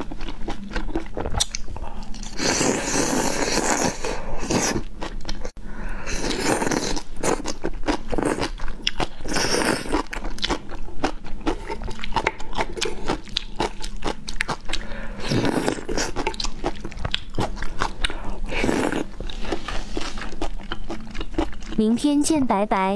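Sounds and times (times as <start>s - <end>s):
wet chewing and crunching: 0.0s - 21.8s
slurping: 1.2s - 4.9s, 6.0s - 10.3s, 11.4s - 21.7s.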